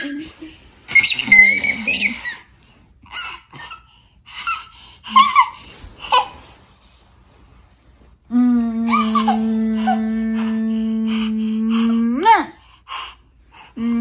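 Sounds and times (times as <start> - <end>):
toddler laughing and squealing: 0.9 - 2.5.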